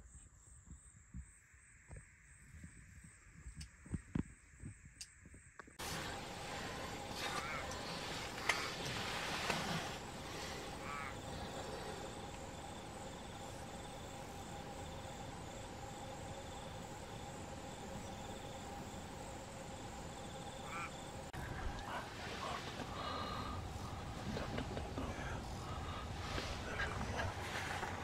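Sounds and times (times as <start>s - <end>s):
background hiss and hum: 0.1s - 28.0s.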